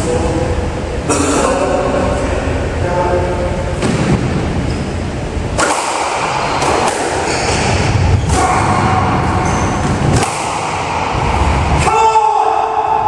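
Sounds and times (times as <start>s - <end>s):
squash ball hits: 3.8s - 4.4s, 5.5s - 11.8s.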